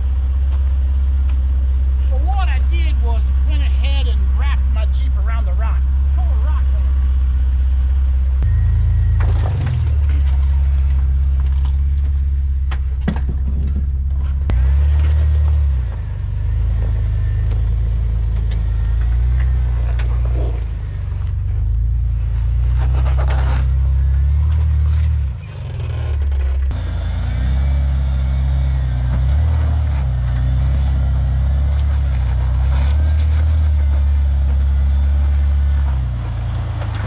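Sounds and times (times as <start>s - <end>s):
off-road vehicle engine revving: 0.0s - 37.0s
sharp knocks and scrapes: 22.4s - 26.9s.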